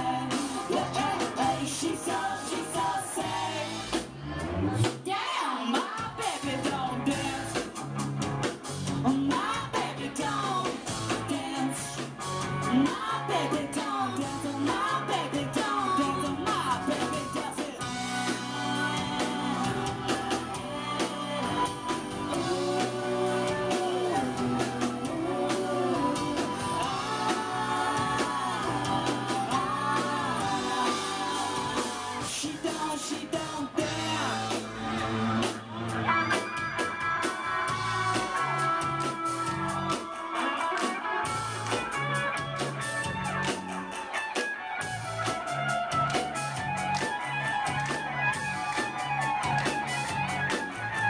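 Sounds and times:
voices singing harmonies: 0:00.0 - 0:07.7, 0:09.0 - 0:12.0, 0:12.7 - 0:35.8
rock band playing live: 0:00.0 - 0:51.0.

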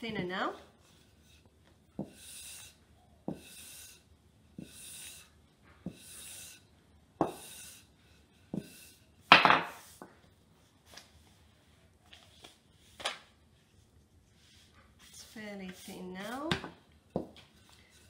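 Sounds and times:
rolling pin rolling dough: 0:00.2 - 0:10.3, 0:14.2 - 0:18.0
rolling pin set down on counter: 0:09.3 - 0:09.8.

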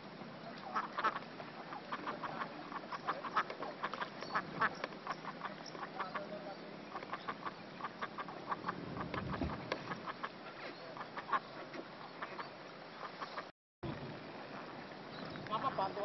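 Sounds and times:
ducks quacking: 0:00.6 - 0:13.5, 0:15.4 - 0:16.0.

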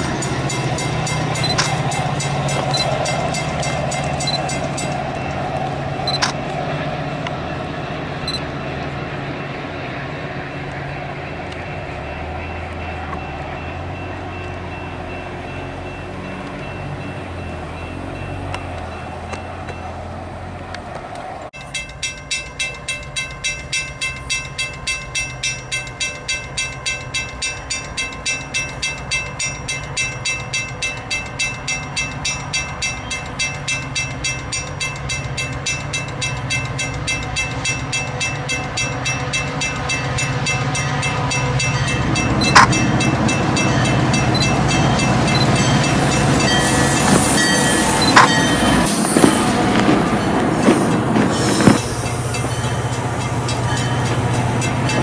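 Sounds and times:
crossing bell ringing: 0:00.0 - 0:06.5, 0:07.4 - 0:09.8, 0:11.1 - 0:20.3, 0:21.6 - 0:55.0
diesel train passing: 0:00.0 - 0:55.0
sharp click: 0:01.4 - 0:01.8, 0:06.1 - 0:06.4, 0:42.4 - 0:42.7, 0:48.0 - 0:48.3.

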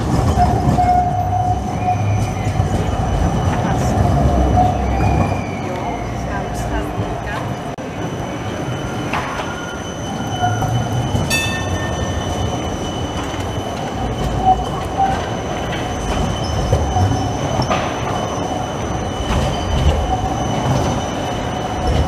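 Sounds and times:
wheels clacking over track joints: 0:00.0 - 0:07.8, 0:08.6 - 0:22.0
tram low rumble: 0:00.0 - 0:22.0
tram wheels squealing on rails: 0:00.0 - 0:22.0.

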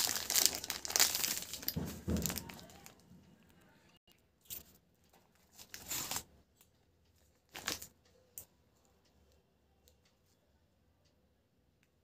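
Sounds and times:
plastic wrapper tearing: 0:00.0 - 0:03.0, 0:05.5 - 0:06.3, 0:07.5 - 0:07.9.

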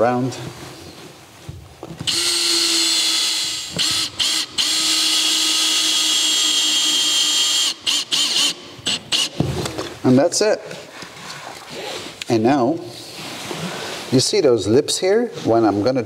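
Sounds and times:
cordless drill driving screws: 0:02.0 - 0:09.4.

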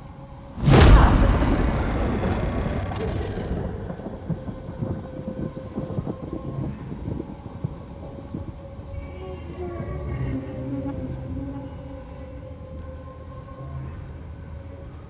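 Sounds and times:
low rattling rumble: 0:00.6 - 0:06.1.

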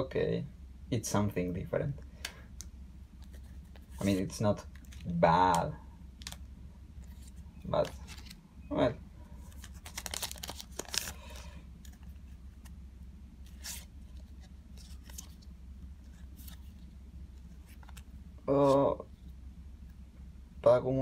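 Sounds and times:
cards sliding together: 0:07.0 - 0:08.4, 0:09.4 - 0:12.8, 0:13.4 - 0:15.4, 0:16.0 - 0:18.8
foil wrapper tearing: 0:09.6 - 0:11.4.

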